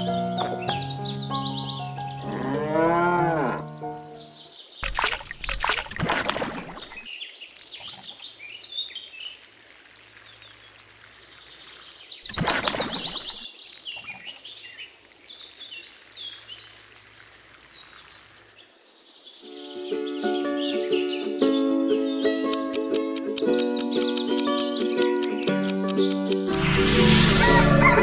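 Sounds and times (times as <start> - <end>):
birds chirping: 0.0 - 28.0
water pouring from watering can: 4.8 - 18.6.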